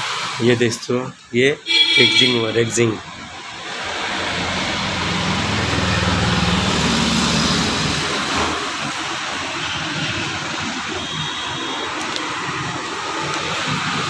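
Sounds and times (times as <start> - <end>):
traffic hiss: 0.0 - 14.0
vehicle engine hum: 1.6 - 11.2.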